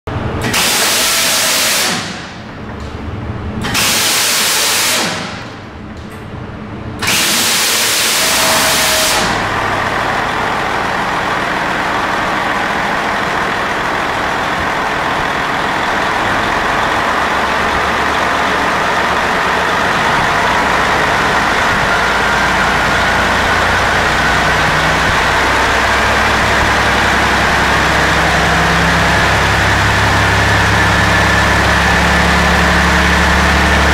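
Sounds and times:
diesel engine running: 0:00.1 - 0:33.9
loud hissing air: 0:07.1 - 0:09.5.

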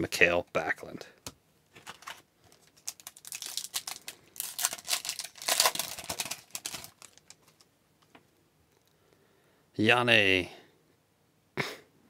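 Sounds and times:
card pack wrapper crinkling: 0:01.8 - 0:07.7.

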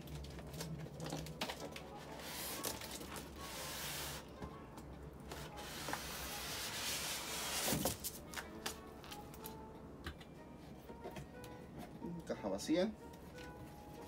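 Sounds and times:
cardboard scraping styrofoam: 0:02.0 - 0:04.3, 0:05.4 - 0:08.0.

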